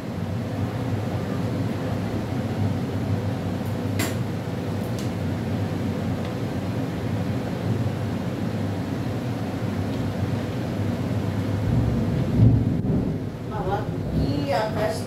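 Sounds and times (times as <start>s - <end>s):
rolling thunder: 11.6s - 14.9s.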